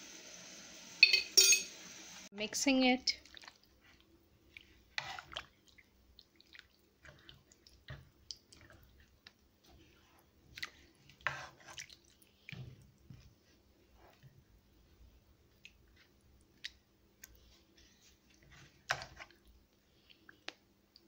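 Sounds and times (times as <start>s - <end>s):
wet squelches of stirring: 2.6s - 21.0s
spatula scraping a pan: 4.7s - 5.4s, 11.2s - 11.8s.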